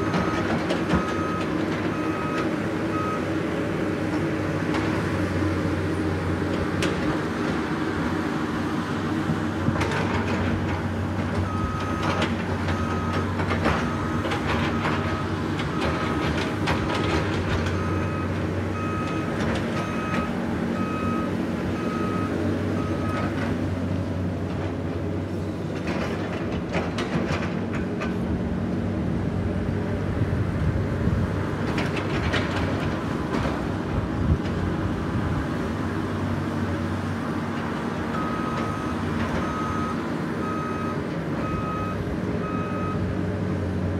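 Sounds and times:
diesel engines running: 0.0 - 43.9
backup alarm beeping: 38.2 - 43.0.

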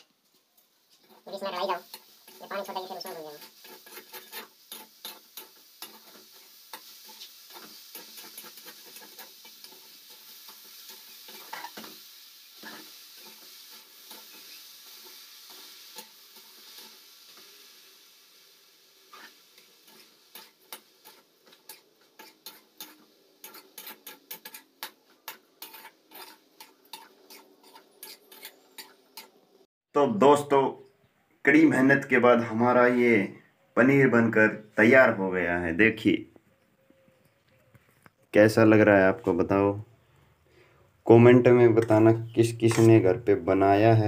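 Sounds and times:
soft sizzle: 0.0 - 44.0
spoon scraping metal pan: 0.9 - 17.5, 19.0 - 29.4.

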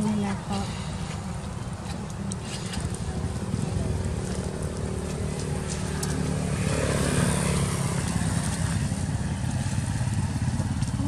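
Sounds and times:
low engine hum: 0.0 - 11.0
motorbike engine passing: 2.4 - 11.0.

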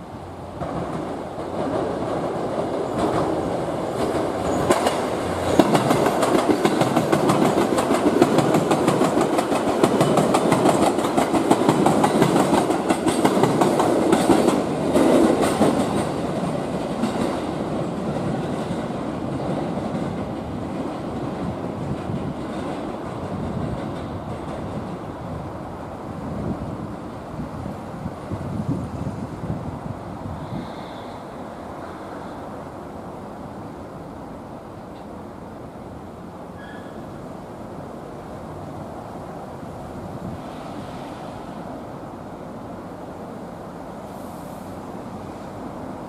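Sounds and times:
train passing: 0.0 - 46.0.

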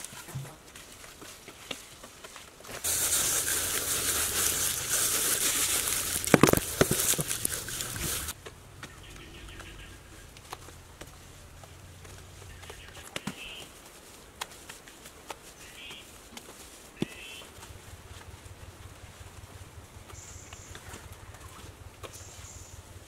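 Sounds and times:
hands scraping plastered surface: 0.0 - 8.4.

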